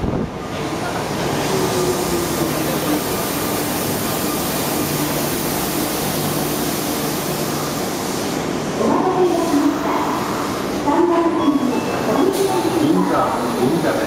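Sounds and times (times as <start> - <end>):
subway train braking with whine: 0.0 - 14.0.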